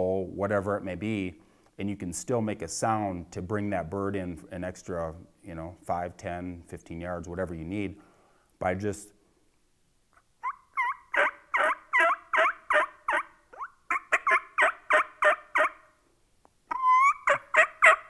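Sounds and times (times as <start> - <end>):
turkey call yelps: 10.4 - 16.0, 16.7 - 18.0.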